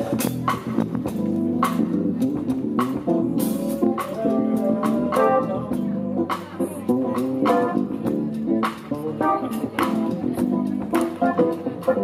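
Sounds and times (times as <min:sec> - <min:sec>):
drum kit: 0:00.0 - 0:12.0.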